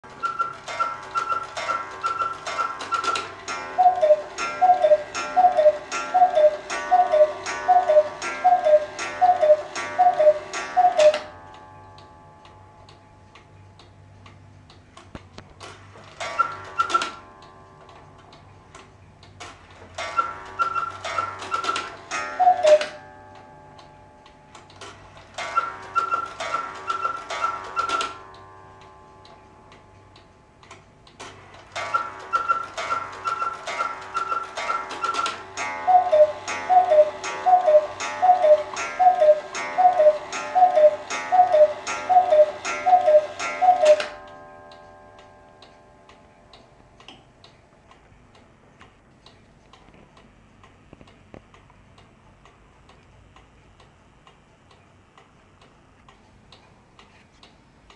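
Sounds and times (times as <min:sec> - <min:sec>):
cuckoo clock call: 0:00.0 - 0:14.8, 0:16.1 - 0:47.6.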